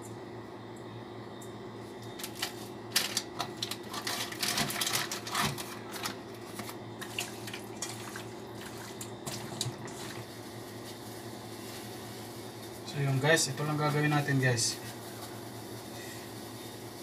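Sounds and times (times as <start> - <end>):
steady low hum: 0.0 - 17.0
plastic packet crinkling: 2.2 - 8.1.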